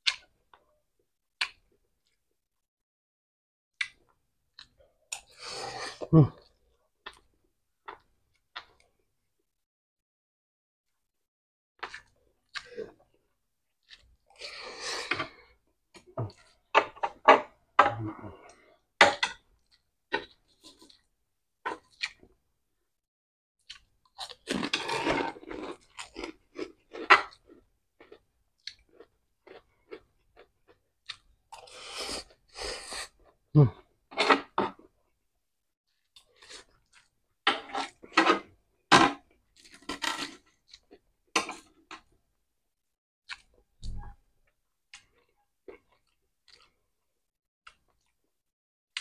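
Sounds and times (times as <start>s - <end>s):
person chewing crunchy food: 17.9s - 22.4s, 23.6s - 33.8s, 36.0s - 38.5s, 39.2s - 42.2s, 43.2s - 44.1s, 44.9s - 46.8s.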